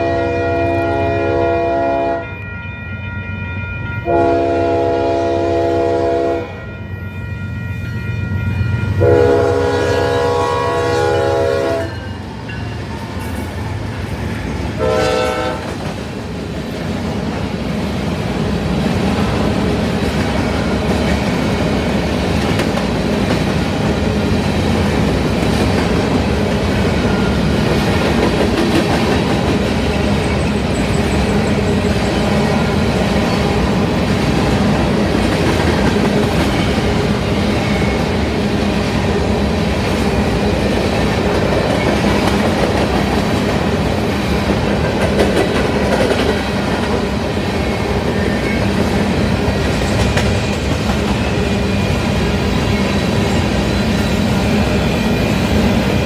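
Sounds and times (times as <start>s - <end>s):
locomotive air horn blasts: 0.0s - 2.4s, 4.0s - 6.6s, 9.0s - 12.0s, 14.8s - 15.7s
rail cars rumbling and clattering: 0.0s - 56.0s.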